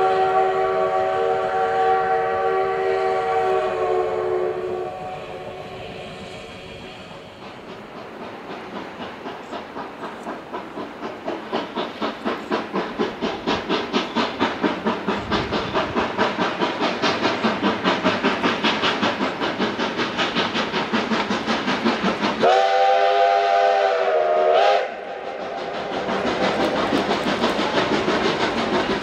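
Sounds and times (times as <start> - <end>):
steam whistle chord: 0.0 - 5.8, 22.4 - 25.5
steam locomotive chuffing: 0.0 - 29.0.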